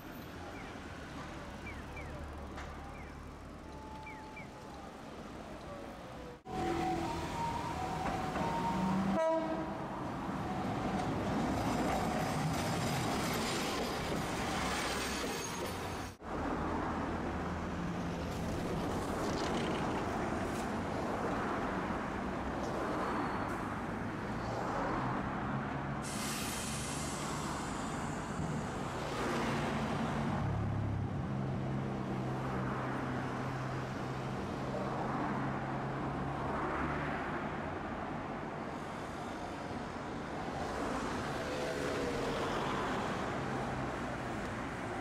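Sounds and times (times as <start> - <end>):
streetcar running with low hum: 0.0 - 45.0
short hiss: 26.0 - 27.8.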